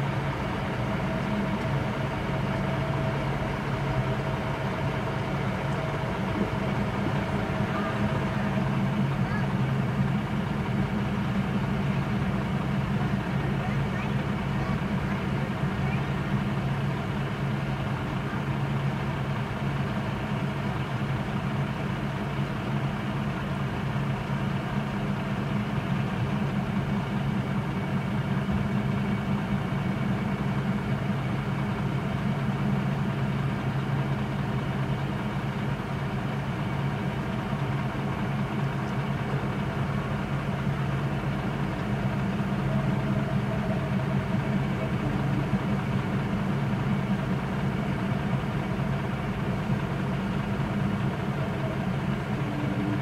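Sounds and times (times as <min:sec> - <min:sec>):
car engine idling: 0:00.0 - 0:53.0.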